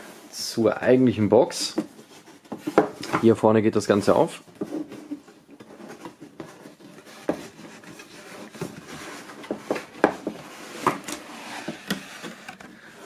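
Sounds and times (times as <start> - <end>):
cardboard rubbing and scraping: 4.6 - 13.0.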